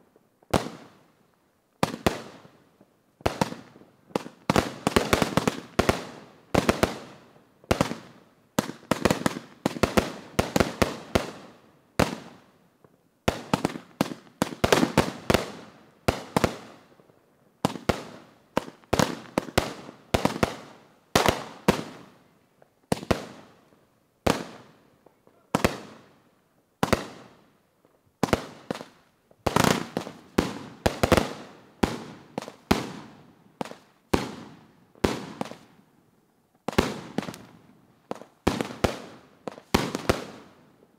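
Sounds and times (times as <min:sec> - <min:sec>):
fireworks bangs: 0:28.2 - 0:35.7, 0:36.6 - 0:40.5.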